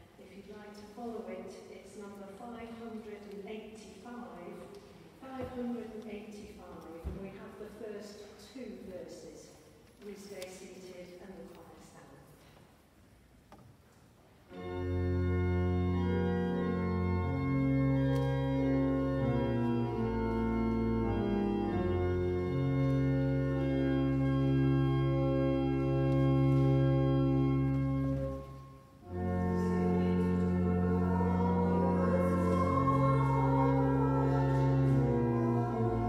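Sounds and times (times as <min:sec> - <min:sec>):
church organ playing chords: 0:14.5 - 0:36.0.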